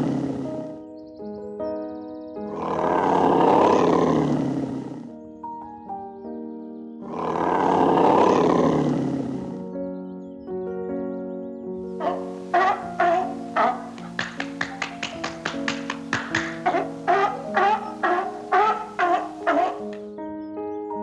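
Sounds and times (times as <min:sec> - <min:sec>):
deep rough animal roar: 0:00.0 - 0:00.8, 0:02.5 - 0:05.2, 0:07.0 - 0:09.8, 0:12.0 - 0:14.3, 0:15.8 - 0:20.1
background music of held notes: 0:00.0 - 0:21.0.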